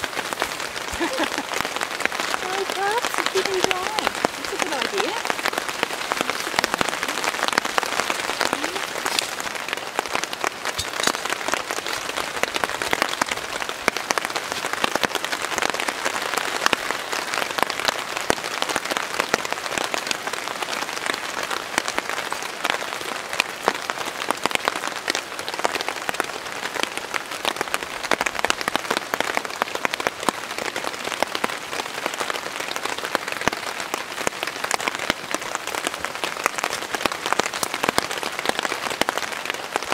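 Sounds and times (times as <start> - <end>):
rain pattering on a tarp: 0.0 - 39.9.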